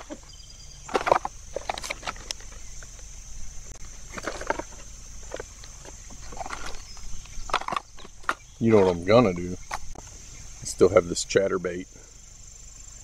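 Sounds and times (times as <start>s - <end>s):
tackle rattling in a box: 4.0s - 10.0s.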